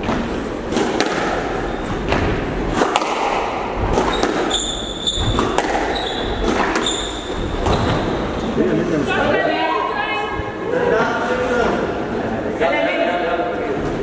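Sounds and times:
squash ball knocking off rackets and walls: 0.0s - 8.1s
shoes squeaking on wooden floor: 3.9s - 8.5s.

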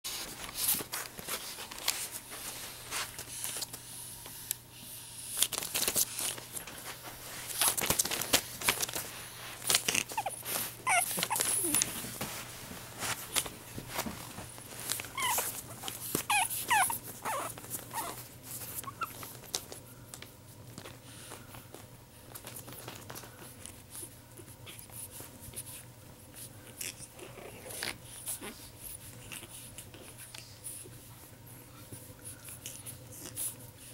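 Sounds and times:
rustling and clicking: 0.1s - 4.6s, 5.3s - 27.1s
puppy whining: 9.6s - 12.1s, 14.4s - 19.7s, 26.6s - 31.0s.

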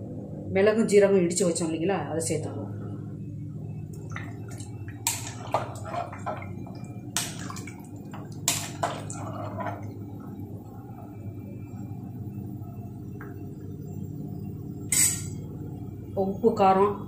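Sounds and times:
liquid sloshing: 3.9s - 12.0s.

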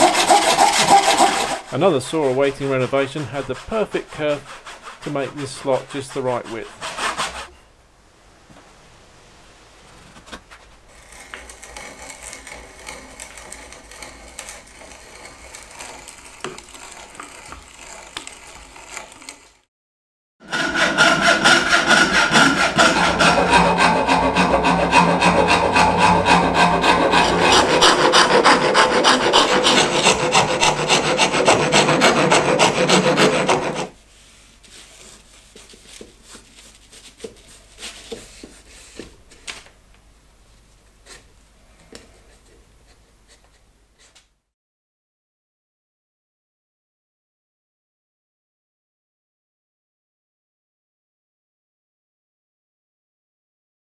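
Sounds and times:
sandpaper rubbing wood: 0.0s - 7.5s, 10.9s - 19.4s, 20.5s - 39.0s
hand-sawing wood: 0.0s - 7.6s, 10.9s - 19.6s, 20.4s - 34.0s
rasp and file strokes on wood: 0.0s - 7.6s, 10.9s - 19.5s, 20.4s - 34.0s.

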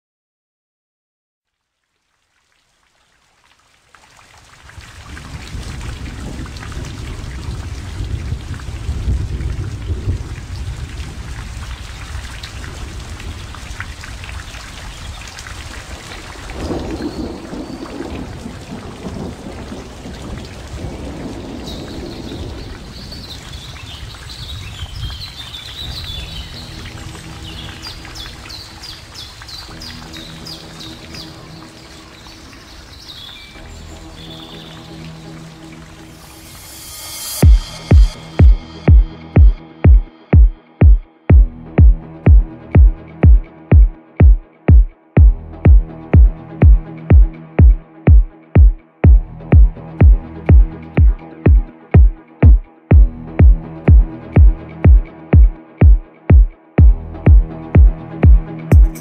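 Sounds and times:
wind buffeting microphone: 4.8s - 26.8s.

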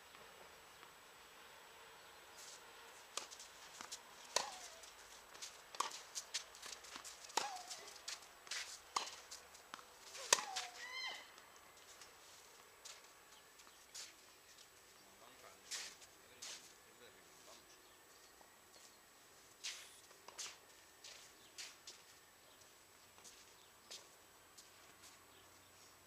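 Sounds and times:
footsteps on court: 2.4s - 10.8s
racket hitting tennis ball: 3.1s - 9.3s, 10.1s - 10.8s
ball bouncing on court: 4.3s - 4.8s.

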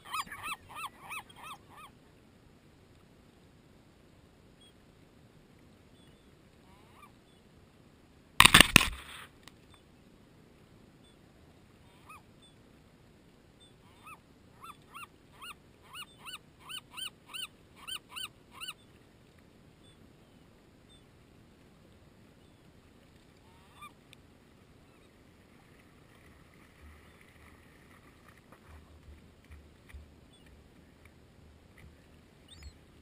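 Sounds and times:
gull yelping call: 0.0s - 1.9s, 13.9s - 18.8s.

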